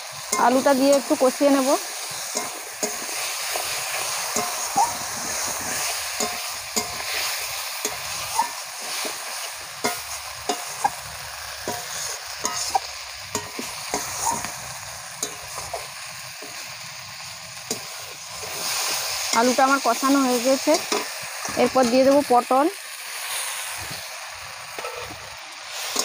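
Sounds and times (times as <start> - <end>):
frying sizzle: 0.0 - 26.0
metal spatula scraping a pan: 0.3 - 16.6, 24.7 - 26.0.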